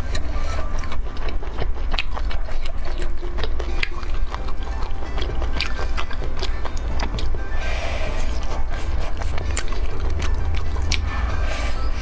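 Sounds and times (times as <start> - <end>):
background music: 0.0 - 12.0
person chewing and biting: 0.0 - 12.0.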